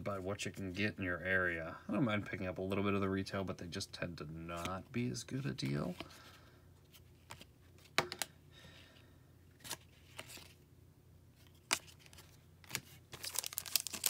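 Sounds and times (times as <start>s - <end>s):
trading cards flipped by hand: 6.9s - 8.3s, 9.6s - 10.6s.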